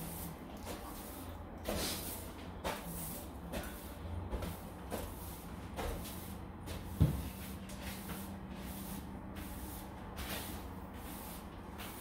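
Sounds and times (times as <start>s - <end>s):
soft rustling and shuffling: 0.0s - 12.0s.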